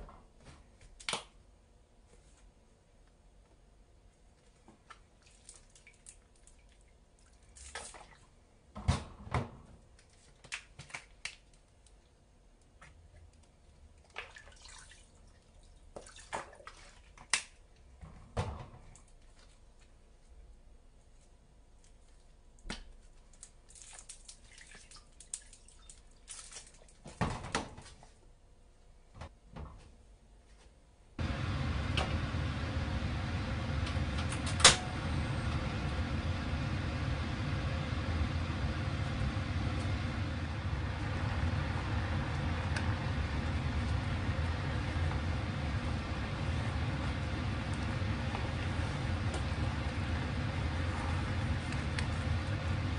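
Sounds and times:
gas stove burner rumble: 31.2 - 52.9.

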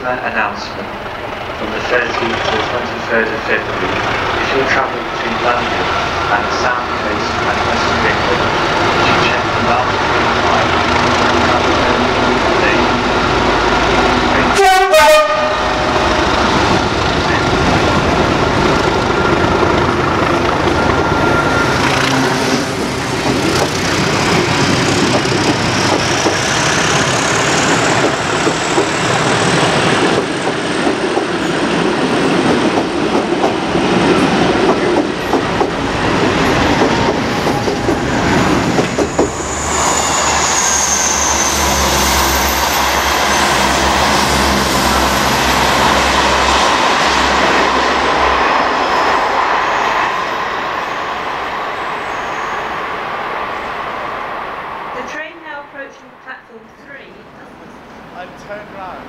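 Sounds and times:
diesel locomotive passing: 0.0 - 59.0
locomotive horn blast: 11.9 - 16.2, 21.4 - 23.2
train wheels clacking over rail joints: 23.1 - 39.4.

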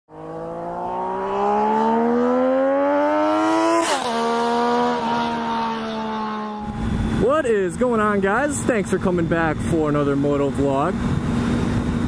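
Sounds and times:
motorcycle engine accelerating: 0.1 - 7.4, 11.0 - 12.0.

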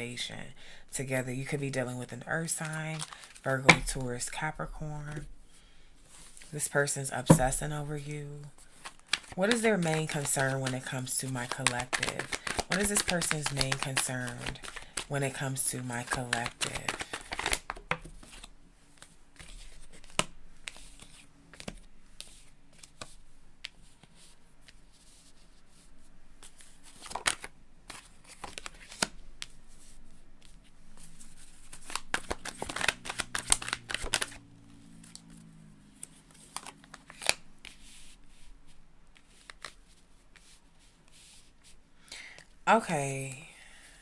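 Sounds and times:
cards being shuffled: 2.6 - 4.1, 8.6 - 25.4, 26.4 - 38.5, 39.1 - 41.8.

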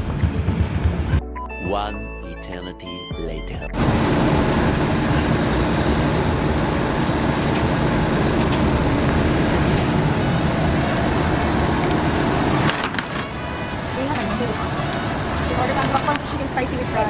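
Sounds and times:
car engine idling: 3.8 - 17.0.

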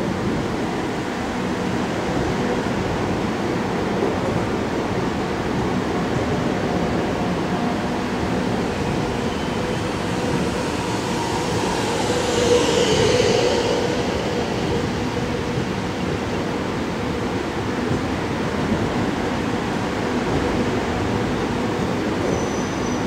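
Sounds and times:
train wheels rumbling: 4.0 - 23.0
high whine falling in pitch: 7.6 - 17.9.

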